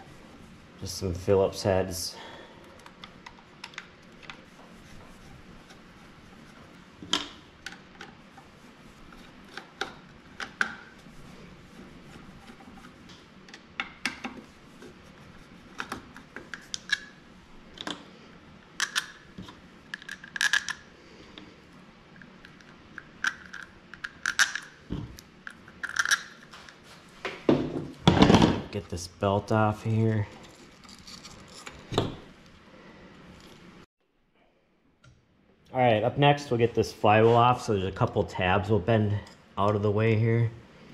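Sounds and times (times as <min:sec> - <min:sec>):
tools clicking and knocking: 0:18.8 - 0:20.8, 0:22.2 - 0:26.5.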